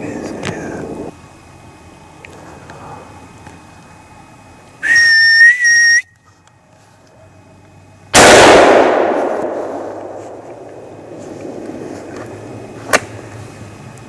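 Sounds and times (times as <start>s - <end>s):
loud high whistle: 4.8s - 6.2s
rifle shot with echo: 8.2s - 11.8s.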